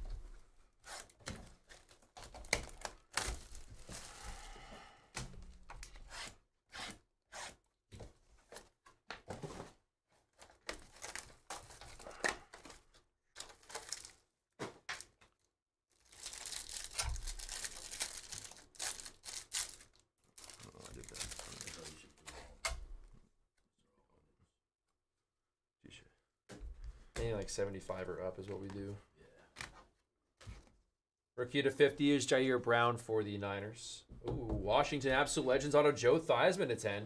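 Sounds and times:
wrapper tearing and crinkling: 0:01.7 - 0:04.0, 0:10.7 - 0:12.8, 0:13.4 - 0:14.2, 0:15.9 - 0:22.2.

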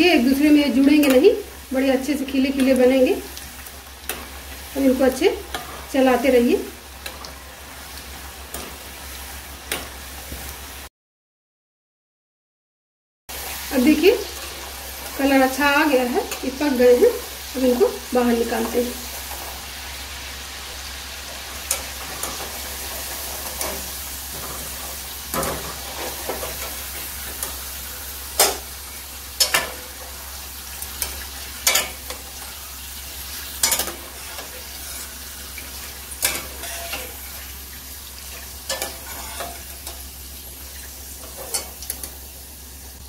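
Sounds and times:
food sizzling in hot oil: 0:00.0 - 0:10.9, 0:13.3 - 0:43.0
utensils clinking and scraping pan: 0:05.1 - 0:07.3, 0:21.2 - 0:40.1, 0:40.8 - 0:42.2.

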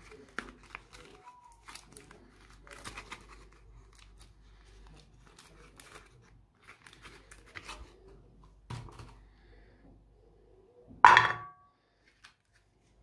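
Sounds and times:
paper wrapper crinkling and tearing: 0:00.0 - 0:08.2.

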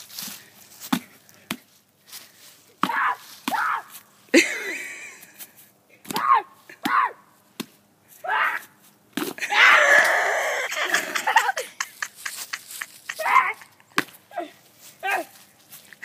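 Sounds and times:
child yelling and screaming: 0:02.9 - 0:04.0, 0:06.1 - 0:07.2, 0:08.2 - 0:08.7, 0:13.1 - 0:13.7, 0:14.3 - 0:15.4.

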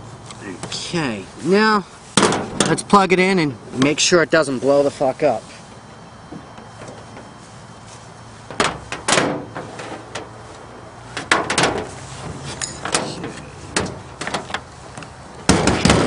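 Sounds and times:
handling knocks and clicks: 0:11.1 - 0:16.0.

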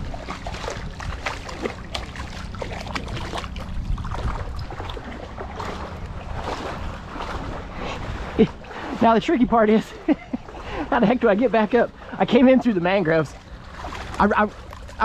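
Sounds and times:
fish splashing in water: 0:00.0 - 0:09.0, 0:13.3 - 0:15.0
low rumble: 0:00.0 - 0:15.0.

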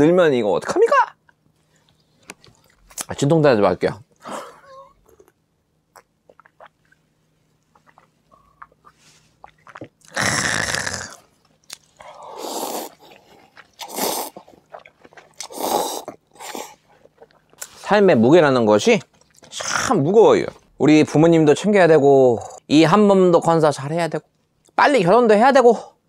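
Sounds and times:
chewing: 0:07.6 - 0:10.2, 0:11.4 - 0:17.8
noodles slurping: 0:07.7 - 0:17.8.

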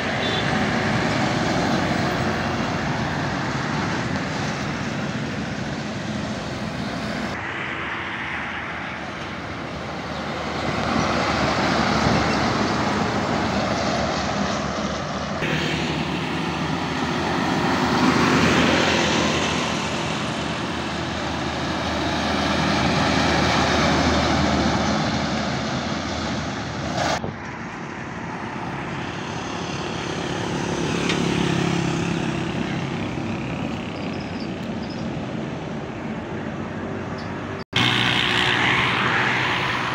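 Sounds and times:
heavy trucks driving past: 0:00.0 - 0:39.9
motorcycles driving past: 0:37.8 - 0:39.9.

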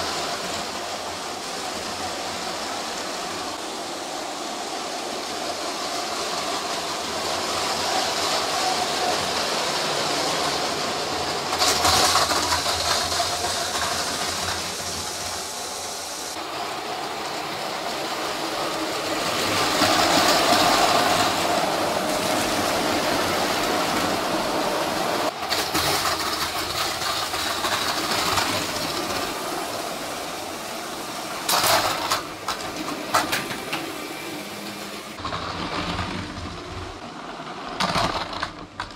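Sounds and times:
toy train motor whir: 0:04.7 - 0:24.2, 0:24.9 - 0:37.0
plastic clatter of derailing cars: 0:11.4 - 0:15.2, 0:25.3 - 0:29.4, 0:31.4 - 0:34.0, 0:35.2 - 0:37.0, 0:37.6 - 0:38.9.

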